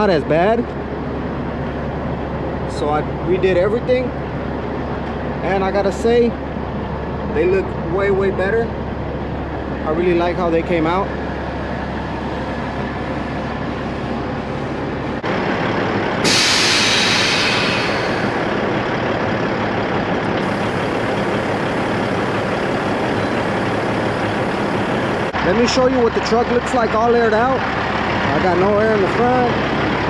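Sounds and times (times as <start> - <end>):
truck engine idling: 0.0 - 30.0
loud hiss of air: 16.2 - 18.5, 20.4 - 25.4.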